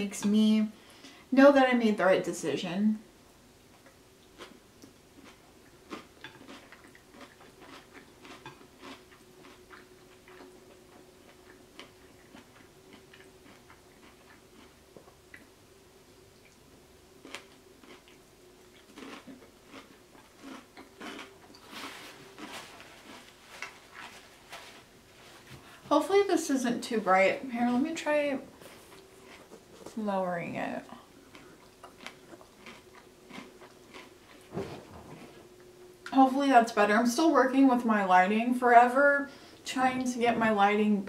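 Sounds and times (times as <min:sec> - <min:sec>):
faint steady hum: 0:00.0 - 0:41.0
close-mic chewing: 0:03.6 - 0:25.8, 0:27.1 - 0:30.1, 0:30.9 - 0:34.5
paper napkin rustling: 0:21.6 - 0:25.8.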